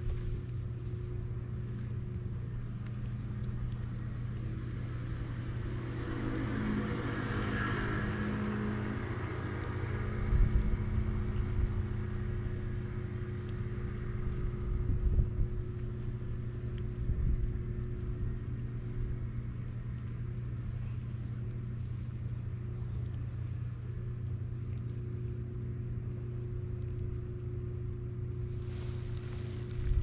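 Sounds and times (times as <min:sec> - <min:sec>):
low engine hum: 0:00.0 - 0:30.0
louder engine sound: 0:04.5 - 0:15.2.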